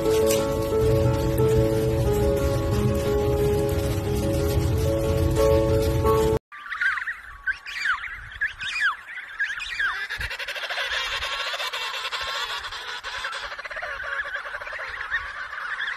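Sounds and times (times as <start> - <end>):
penguins calling: 8.7 - 15.9.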